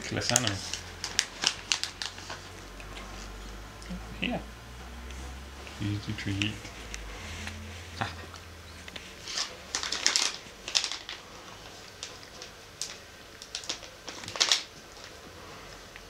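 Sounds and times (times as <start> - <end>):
cat crunching treat: 0.0 - 3.6, 8.2 - 16.0.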